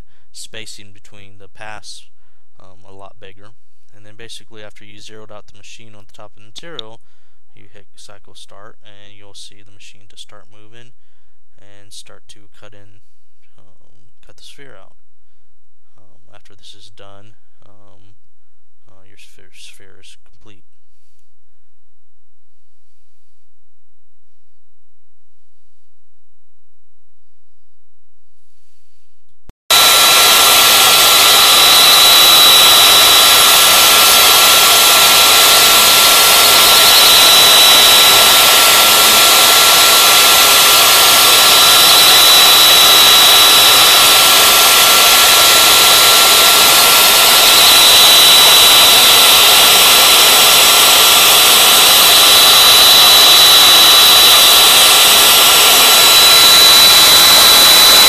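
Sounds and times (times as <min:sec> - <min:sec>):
bit milling foam hiss: 0:29.7 - 0:58.0
router spindle whining: 0:29.7 - 0:58.0.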